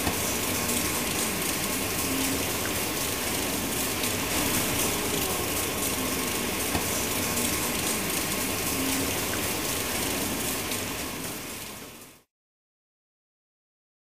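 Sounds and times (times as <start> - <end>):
mixing plant rushing noise: 0.0 - 12.0.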